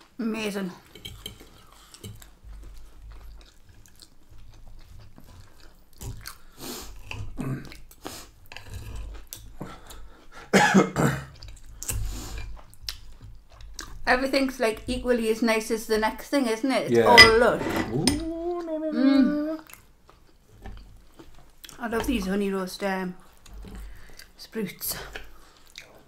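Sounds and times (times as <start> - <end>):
chewing and mouth sounds: 0.9 - 10.5, 11.3 - 14.1, 19.6 - 22.5, 23.1 - 26.0
knife and fork on ceramic plate: 17.1 - 18.3.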